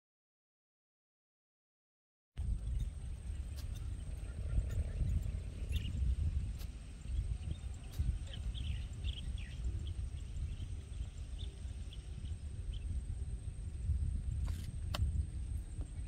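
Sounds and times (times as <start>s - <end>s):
wind rumbling on microphone: 2.4s - 16.0s
faint bird chirps: 2.6s - 13.4s.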